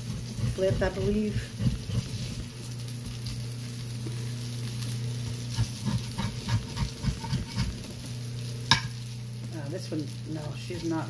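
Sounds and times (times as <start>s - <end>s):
utensil scraping a metal pan: 0.0s - 2.5s, 5.6s - 7.8s, 10.6s - 11.0s
pancakes frying in a pan: 0.0s - 11.0s
steady low hum: 0.0s - 11.0s.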